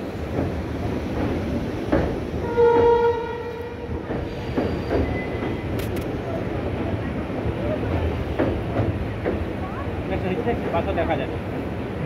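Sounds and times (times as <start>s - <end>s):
train rumbling: 0.0s - 12.0s
train wheels knocking: 0.0s - 12.0s
train horn blast: 2.4s - 4.0s.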